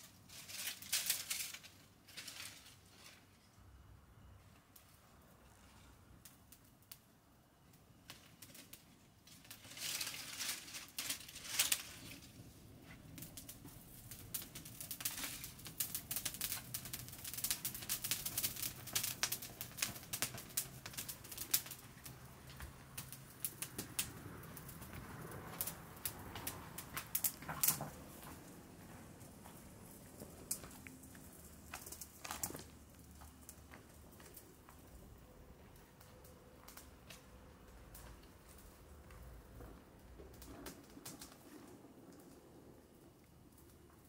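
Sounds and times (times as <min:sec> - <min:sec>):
twig fire crackling and popping: 0:00.0 - 0:03.5, 0:04.7 - 0:44.0
footsteps on stony ground: 0:26.3 - 0:35.0.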